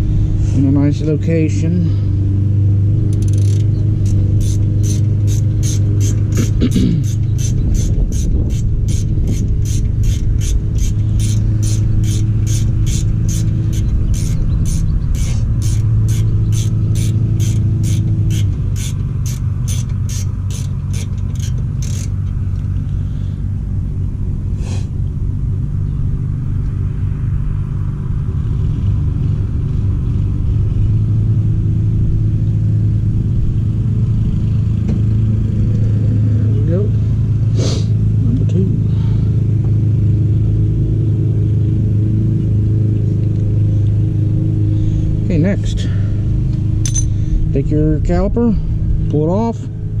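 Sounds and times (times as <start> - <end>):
low rumbling hum: 0.0 - 50.0
ratcheting wrench clicking: 3.1 - 22.9, 46.8 - 47.2.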